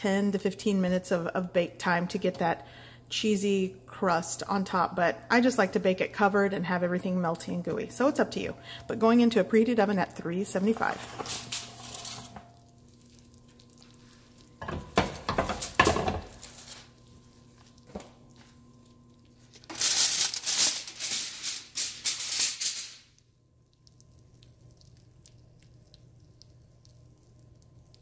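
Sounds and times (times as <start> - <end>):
aluminum foil crinkling: 10.5 - 14.6, 15.5 - 23.2
sauce bubbling: 11.8 - 15.9, 16.9 - 19.6, 23.1 - 28.0.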